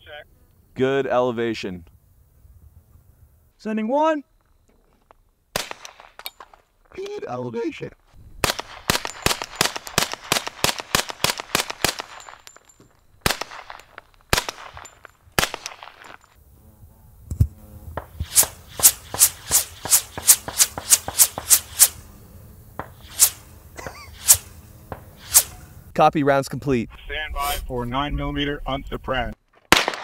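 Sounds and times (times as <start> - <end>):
bullet snaps: 5.6 - 7.2, 8.4 - 16.4, 29.7 - 30.0.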